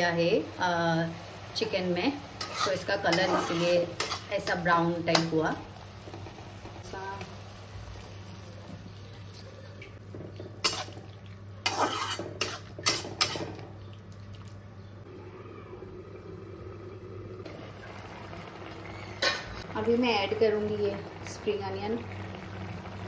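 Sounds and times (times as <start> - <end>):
chicken frying: 0.0 - 15.0, 16.5 - 23.0
utensil scraping and clanking pan: 2.4 - 4.5, 10.4 - 11.0, 11.6 - 13.6.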